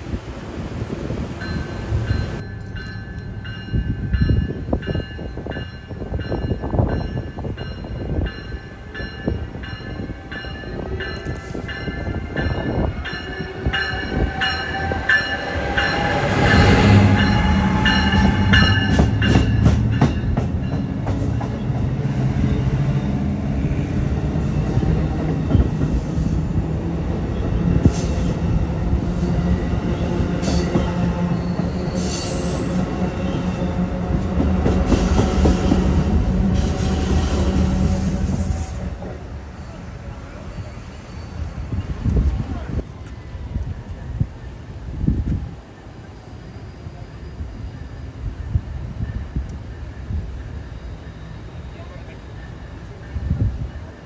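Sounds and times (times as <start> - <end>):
heavy low train engine: 0.0 - 54.0
repeated knocks of train: 15.3 - 22.3, 24.7 - 26.2, 34.0 - 37.0.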